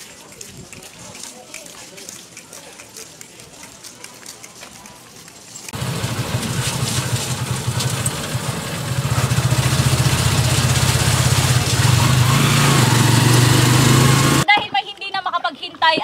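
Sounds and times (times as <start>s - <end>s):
road and wind hiss: 4.8s - 14.5s
motorcycle engine running: 5.8s - 14.4s.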